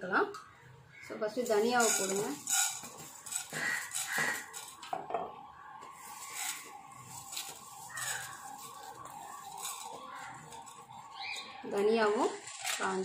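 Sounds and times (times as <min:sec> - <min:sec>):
wooden spatula scraping pan: 0:01.7 - 0:04.7.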